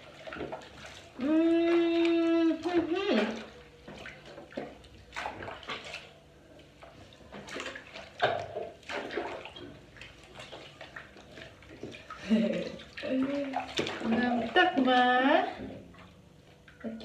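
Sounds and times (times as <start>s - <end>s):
hands splashing water in a tub: 0.0s - 17.0s.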